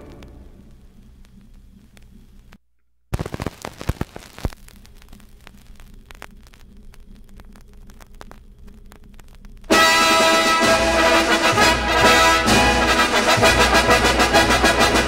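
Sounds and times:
low steady hum: 0.0s - 3.1s, 4.2s - 12.7s
vinyl crackle and pops: 0.0s - 9.8s.

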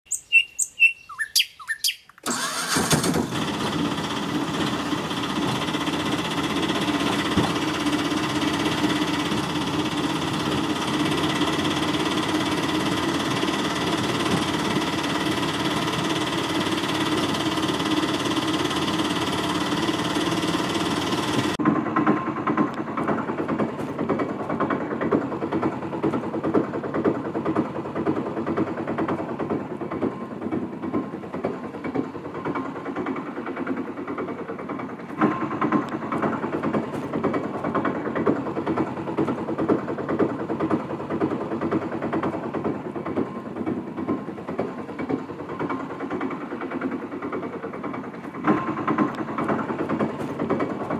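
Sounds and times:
short chirps: 0.1s - 2.2s
motor engine running: 2.2s - 50.9s.

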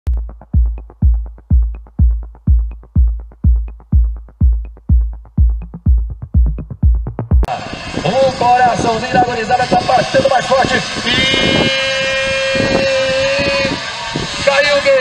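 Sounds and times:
electronic dance music: 0.1s - 11.9s.

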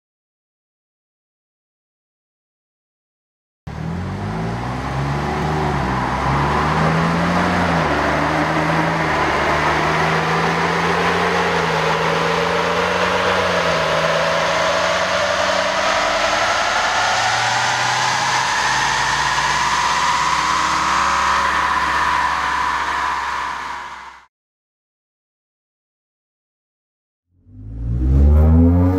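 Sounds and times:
car engine revving under load: 3.7s - 24.2s, 27.5s - 28.9s.

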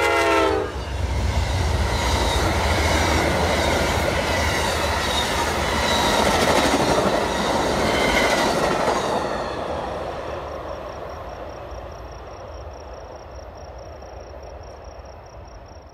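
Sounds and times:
train rolling on rails: 0.0s - 15.9s
insect trill: 0.7s - 15.9s.

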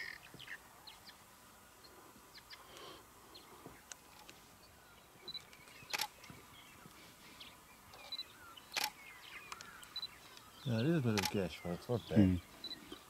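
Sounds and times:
faint bird chirps: 0.0s - 13.0s
camera shutter clicks: 5.8s - 6.2s, 8.7s - 9.0s, 11.2s - 11.4s.

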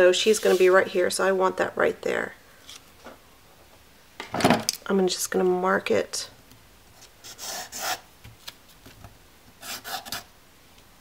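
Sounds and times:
pencil scratching on paper: 7.2s - 8.0s, 9.6s - 10.2s.

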